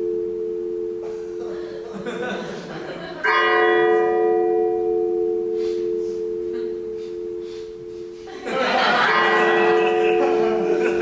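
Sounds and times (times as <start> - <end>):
metal bell ringing: 3.2 - 11.0.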